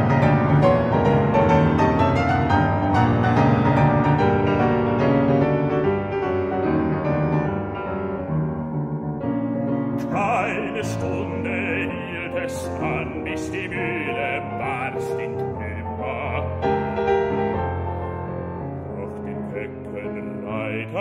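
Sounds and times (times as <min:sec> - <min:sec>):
grand piano playing: 0:00.0 - 0:21.0
man singing operatically: 0:10.0 - 0:17.4, 0:18.8 - 0:21.0.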